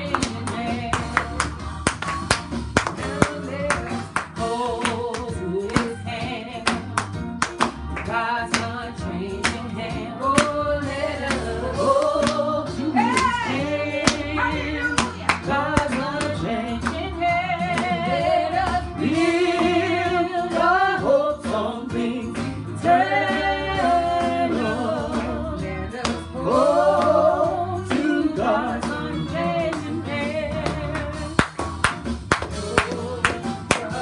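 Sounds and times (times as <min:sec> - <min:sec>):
gospel voices singing: 0:00.0 - 0:01.8, 0:02.8 - 0:31.4, 0:32.4 - 0:34.0
instrumental backing: 0:00.0 - 0:34.0.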